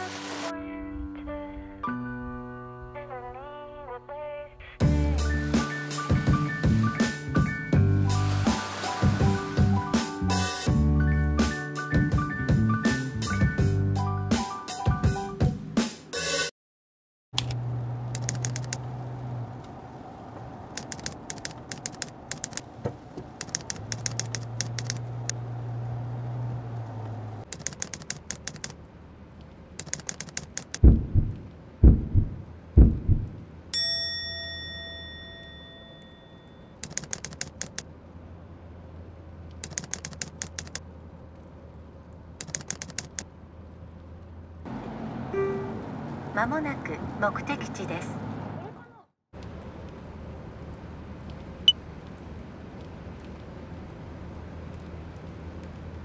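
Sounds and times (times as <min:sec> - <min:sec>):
typewriter key clicks: 0:29.8 - 0:30.8, 0:36.8 - 0:37.8, 0:39.6 - 0:40.8, 0:42.4 - 0:43.2
heavy thumps: 0:30.8 - 0:33.5
bell ding: 0:33.8 - 0:36.8.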